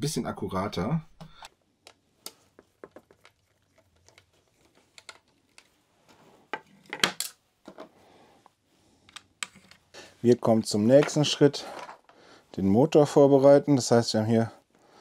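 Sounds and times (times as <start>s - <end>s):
plastic parts clicking on table: 4.9s - 5.7s.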